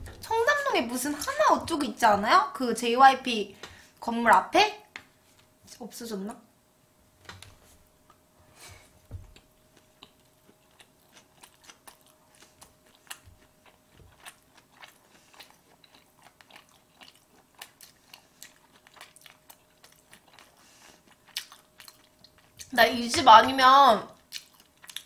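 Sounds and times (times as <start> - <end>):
close-up chewing: 9.2 - 22.8, 24.2 - 25.0.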